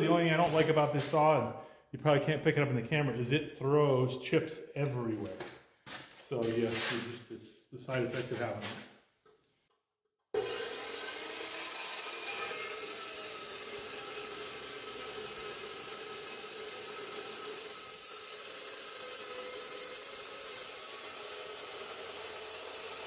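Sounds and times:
cold saw cutting steel: 0:10.4 - 0:23.0.

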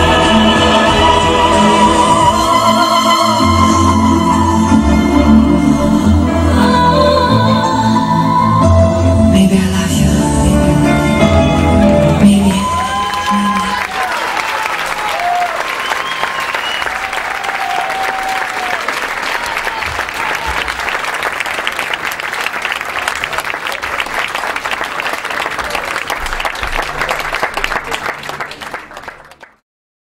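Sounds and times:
audience clapping: 0:11.8 - 0:29.6.

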